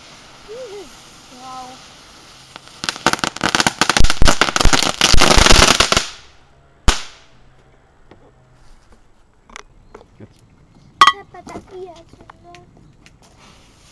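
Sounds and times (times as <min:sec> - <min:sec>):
crackling ground firework pops: 0:00.0 - 0:06.3, 0:06.9 - 0:07.3, 0:11.4 - 0:13.9.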